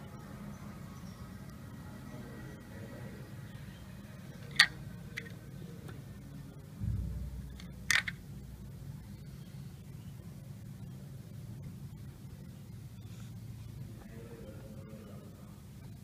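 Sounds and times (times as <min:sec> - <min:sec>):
low steady hum: 0:00.0 - 0:16.0
low bump: 0:06.8 - 0:09.2
sharp clicks: 0:07.5 - 0:08.2.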